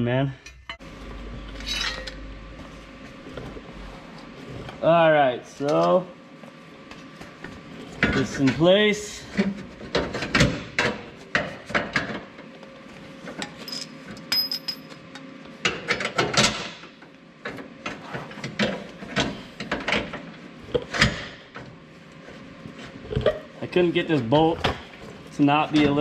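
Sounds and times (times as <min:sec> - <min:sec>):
metallic ring: 0:01.6 - 0:02.2, 0:13.6 - 0:15.0.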